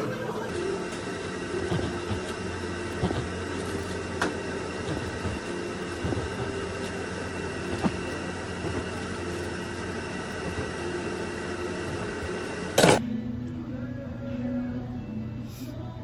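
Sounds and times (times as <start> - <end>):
cafe equipment humming: 0.0 - 16.0.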